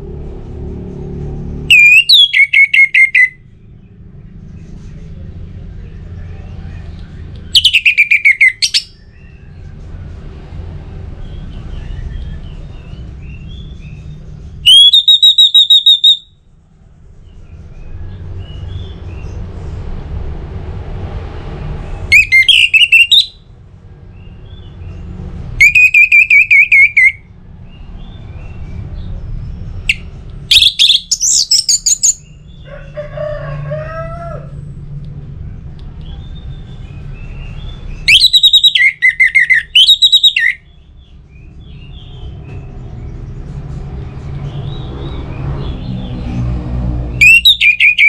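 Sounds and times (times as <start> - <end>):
thrush singing warbled trills: 1.6 - 4.0, 6.4 - 9.6, 11.2 - 16.3, 22.0 - 23.5, 24.2 - 29.0, 29.8 - 32.8, 36.4 - 42.6, 47.1 - 48.0.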